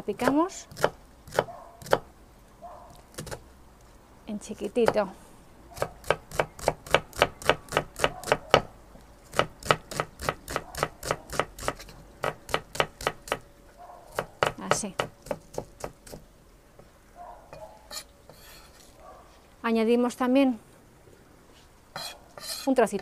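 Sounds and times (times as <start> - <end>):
knife chopping on wooden board: 0.7 - 2.0, 5.8 - 8.7, 9.3 - 13.4, 14.1 - 16.2.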